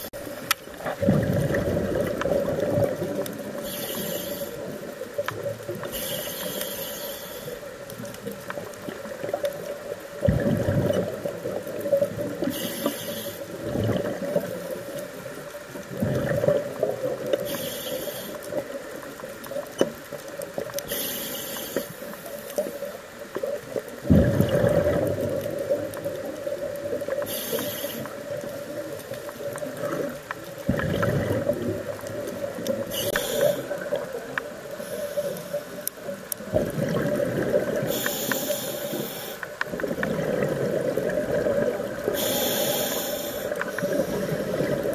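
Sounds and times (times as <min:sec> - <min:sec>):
exhaled bubbles rumbling: 0:00.0 - 0:06.0, 0:07.9 - 0:12.6, 0:13.5 - 0:17.7, 0:23.2 - 0:27.4, 0:28.1 - 0:34.9, 0:36.0 - 0:38.2, 0:39.6 - 0:42.6, 0:43.6 - 0:44.9
scuba regulator inhale hiss: 0:03.5 - 0:05.0, 0:05.8 - 0:07.8, 0:12.4 - 0:13.6, 0:17.3 - 0:18.6, 0:20.8 - 0:23.0, 0:27.1 - 0:28.4, 0:32.8 - 0:34.0, 0:34.7 - 0:35.8, 0:37.8 - 0:39.6, 0:42.0 - 0:44.6.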